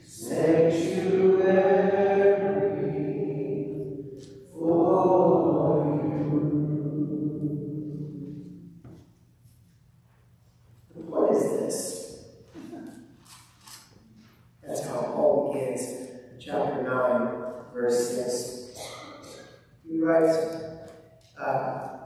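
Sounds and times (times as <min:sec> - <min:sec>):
group of voices singing: 0:00.0 - 0:08.2.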